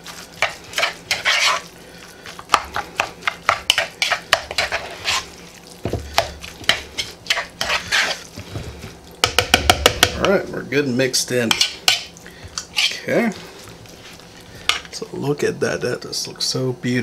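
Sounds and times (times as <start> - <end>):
spoon scraping plastic bowl: 0.0 - 1.7, 2.6 - 8.9
squishy mixing: 0.0 - 15.4.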